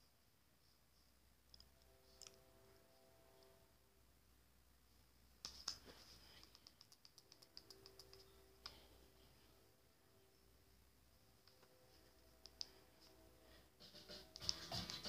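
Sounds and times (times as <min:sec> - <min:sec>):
small ticks: 0:06.4 - 0:08.8.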